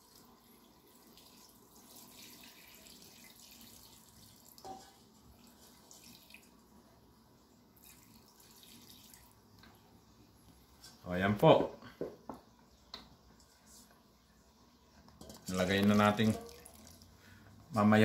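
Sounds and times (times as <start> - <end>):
water trickling into metal pot: 0.0 - 6.7, 7.8 - 9.8, 15.2 - 17.2.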